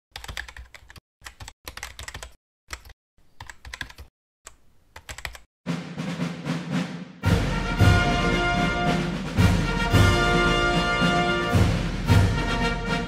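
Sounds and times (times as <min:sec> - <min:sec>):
keyboard typing: 0:00.1 - 0:05.5.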